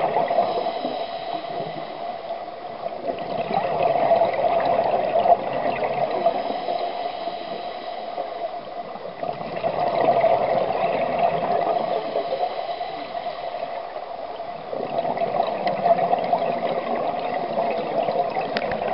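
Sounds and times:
underwater regulator bubbles: 0:00.0 - 0:18.9.

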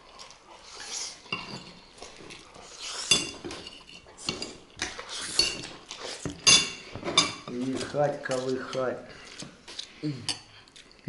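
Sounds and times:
forks clinking on ceramic plates: 0:03.0 - 0:05.7, 0:06.4 - 0:08.8.

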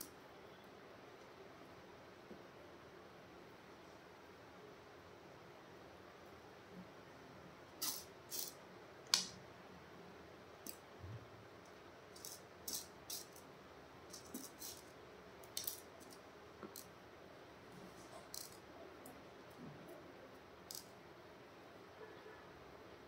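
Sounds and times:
small stones clicking on tabletop: 0:12.2 - 0:13.4, 0:14.1 - 0:14.8, 0:15.4 - 0:16.9, 0:18.3 - 0:18.6, 0:20.7 - 0:20.9.

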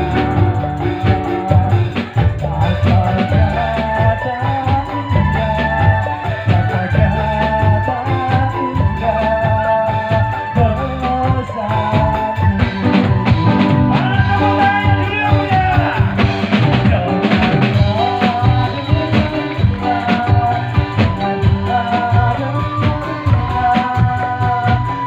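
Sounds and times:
drums and percussion: 0:00.0 - 0:25.0
wavering melody line: 0:00.0 - 0:25.0.

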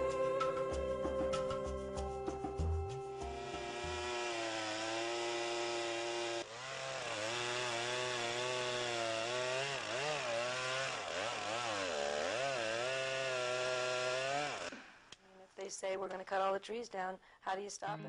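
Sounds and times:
chainsaw cutting tree trunk: 0:03.2 - 0:15.0.

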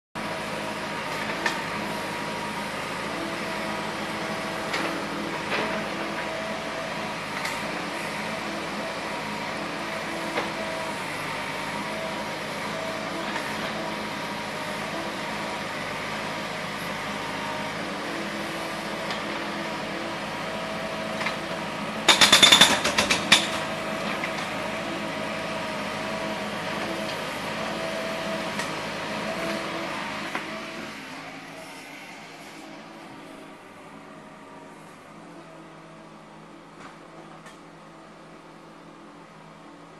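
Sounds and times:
engine running: 0:00.2 - 0:37.6
jackhammer rattling: 0:22.1 - 0:23.7.

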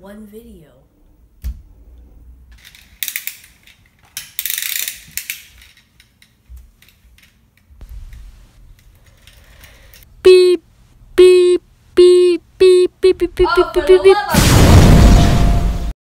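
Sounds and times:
toy car gears ratcheting: 0:04.2 - 0:05.8.

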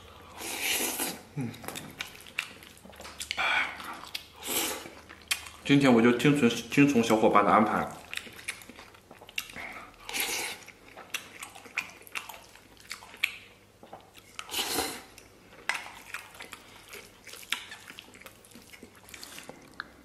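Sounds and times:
chewing food: 0:00.0 - 0:05.7, 0:07.7 - 0:20.0.

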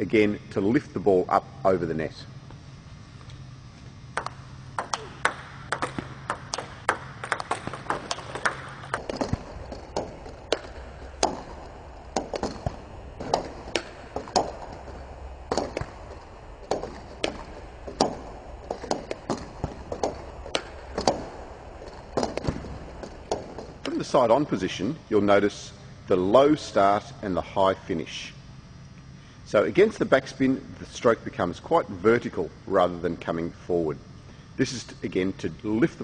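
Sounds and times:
table tennis balls bouncing: 0:04.1 - 0:24.0
paddle striking table tennis ball: 0:04.2 - 0:16.1, 0:16.7 - 0:23.8.

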